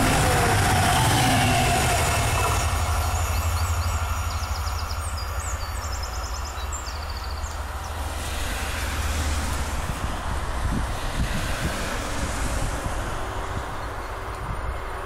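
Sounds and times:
car passing: 0:00.0 - 0:15.0
train rumble: 0:00.0 - 0:15.0
birds chirping in trills: 0:01.4 - 0:08.0.

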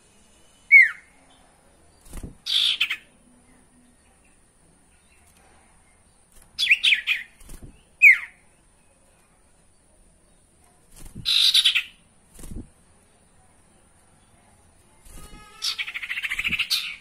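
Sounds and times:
bird chattering and whistling: 0:00.7 - 0:01.1, 0:02.4 - 0:03.1, 0:06.6 - 0:08.4, 0:11.2 - 0:12.0, 0:15.5 - 0:17.0.

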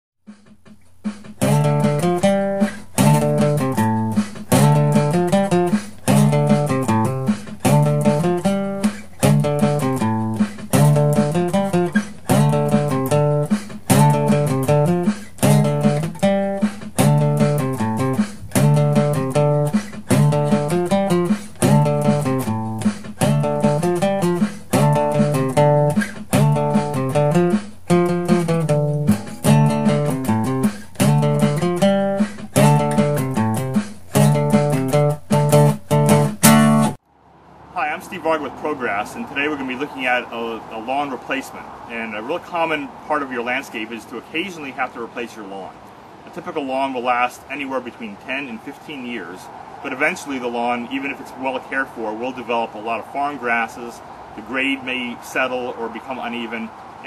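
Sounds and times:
strummed guitar chords: 0:00.3 - 0:37.0.

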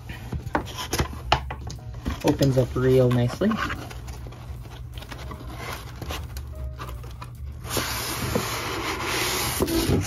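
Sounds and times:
cardboard box rustling: 0:02.0 - 0:10.0
styrofoam packing scraping: 0:02.2 - 0:10.0.

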